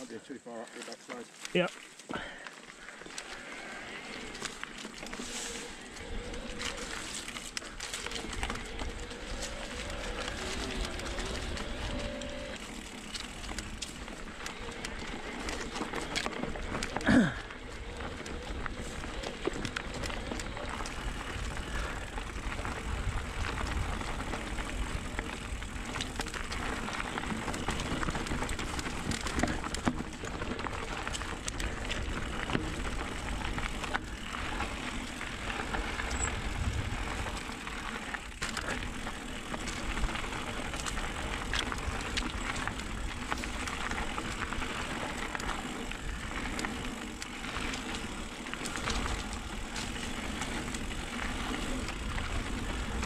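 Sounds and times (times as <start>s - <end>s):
bike rattling over bumps: 1.3s - 53.0s.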